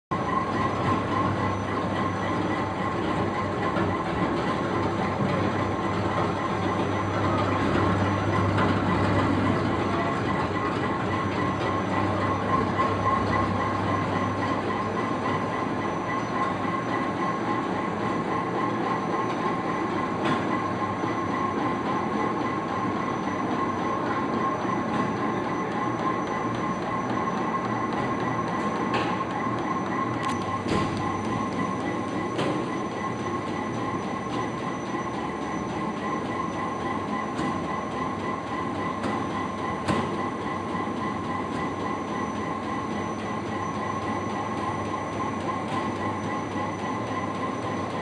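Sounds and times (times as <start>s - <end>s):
low machine hum: 0.1s - 48.0s
steady machine whine: 0.1s - 48.0s
machine mechanical din: 24.7s - 47.9s.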